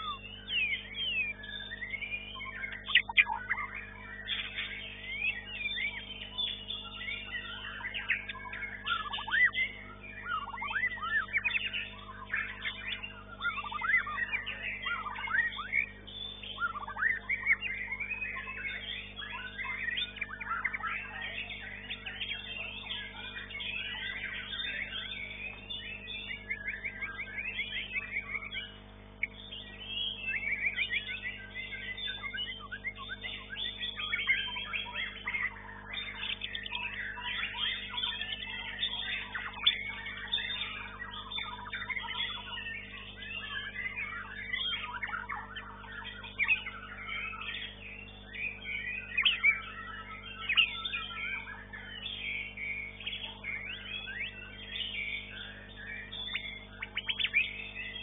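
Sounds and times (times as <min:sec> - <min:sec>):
bird singing whistled song: 0:00.0 - 0:58.0
steady low hum: 0:00.0 - 0:58.0.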